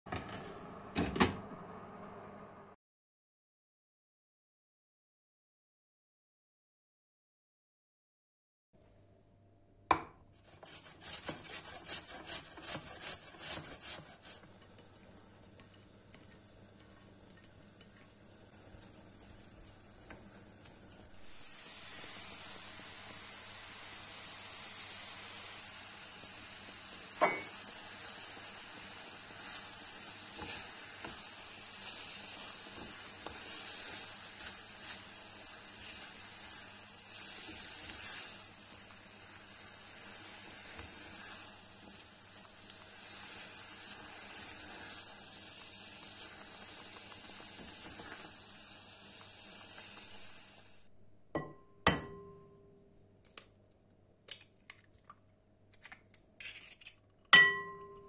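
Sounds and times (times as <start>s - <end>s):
apple sizzling in a frying pan: 10.4s - 50.9s.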